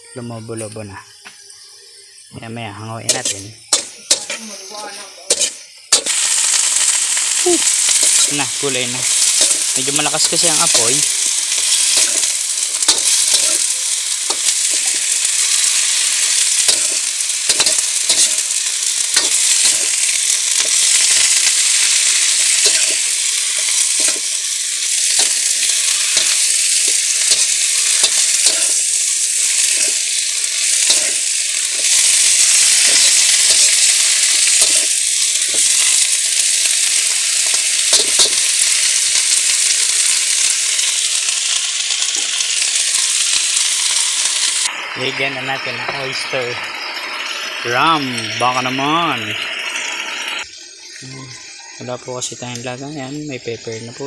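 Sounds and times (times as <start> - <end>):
vegetables sizzling in a wok: 0.1 - 54.0
metal spatula scraping a wok: 3.1 - 7.0, 9.0 - 36.1, 36.8 - 39.0.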